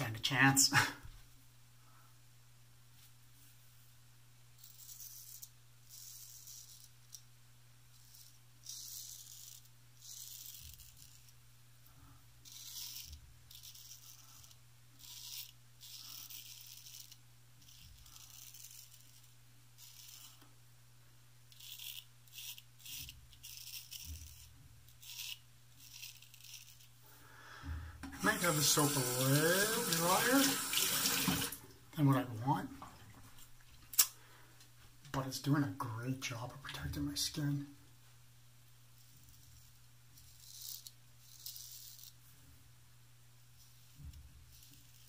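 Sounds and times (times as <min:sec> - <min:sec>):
straight razor scraping stubble: 0:08.0 - 0:11.4, 0:12.4 - 0:20.4, 0:21.5 - 0:27.0, 0:39.0 - 0:42.2.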